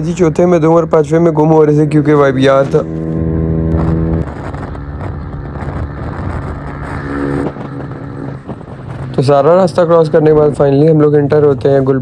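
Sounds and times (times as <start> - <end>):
motorcycle engine hum: 0.0 - 12.0
wind and road rush: 0.0 - 12.0.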